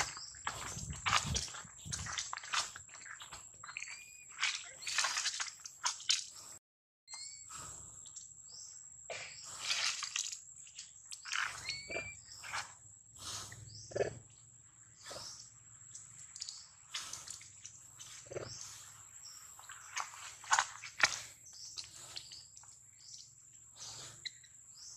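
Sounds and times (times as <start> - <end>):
short rising chirps: 11.5 - 12.3.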